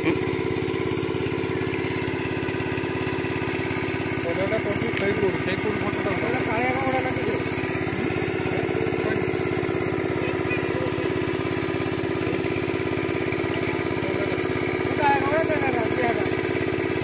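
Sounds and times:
small engine chugging: 0:00.0 - 0:17.0.

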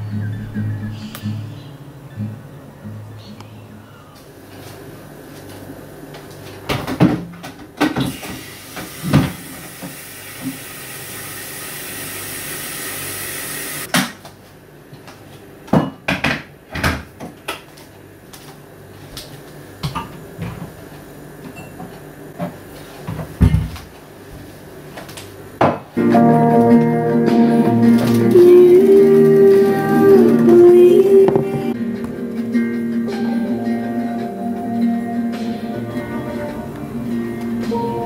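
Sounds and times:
cups and dishes clinking: 0:21.5 - 0:21.9.

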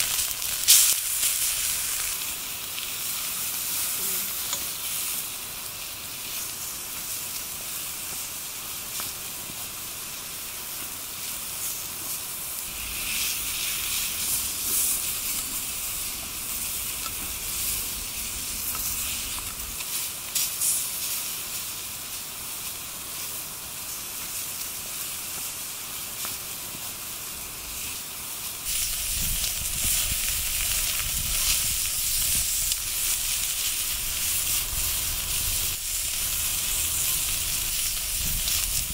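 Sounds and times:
steak sizzling on a griddle: 0:00.0 - 0:38.9
wood fire crackling: 0:00.0 - 0:38.9
low rumble: 0:12.6 - 0:19.8.

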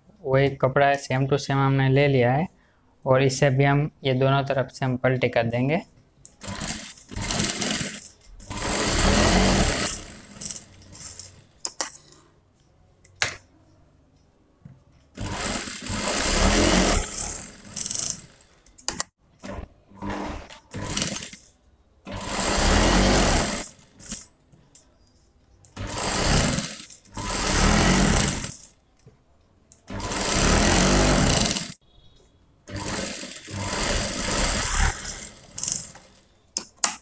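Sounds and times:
sewing machine stitching: 0:06.4 - 0:11.5, 0:15.1 - 0:21.5, 0:22.1 - 0:24.3, 0:25.8 - 0:28.8, 0:29.8 - 0:31.8, 0:32.7 - 0:36.3.

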